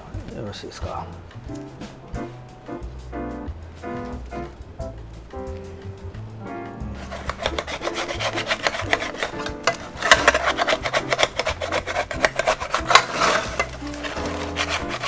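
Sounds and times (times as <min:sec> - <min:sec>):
soft background music: 0:00.0 - 0:15.0
metal spatula scraping baking tray: 0:07.0 - 0:15.0.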